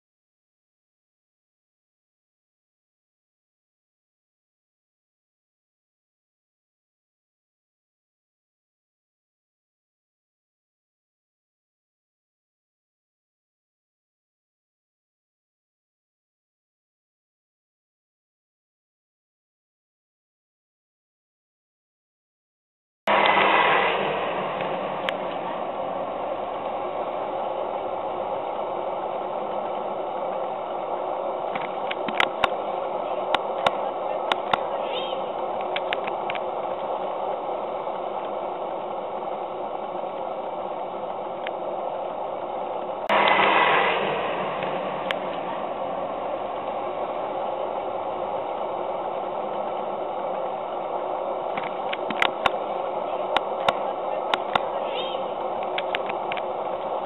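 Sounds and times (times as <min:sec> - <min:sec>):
model steam engine running: 0:23.1 - 0:57.0
paddle wheel turning: 0:23.1 - 0:57.0
steam hissing: 0:35.4 - 0:51.9.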